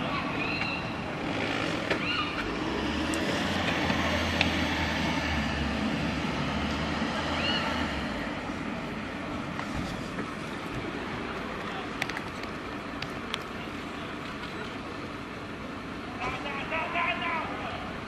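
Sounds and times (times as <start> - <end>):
fire engine running: 0.0 - 18.0
burning car rushing: 0.8 - 9.4.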